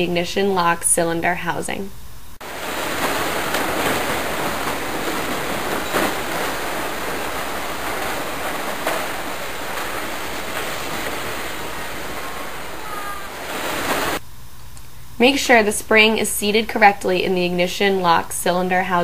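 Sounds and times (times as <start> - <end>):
steady rushing noise: 2.4 - 14.2.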